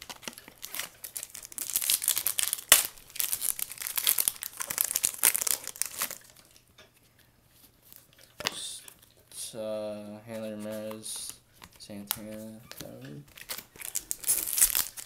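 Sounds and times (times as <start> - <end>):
foil wrapper crinkling: 0.0 - 6.6, 13.3 - 15.0.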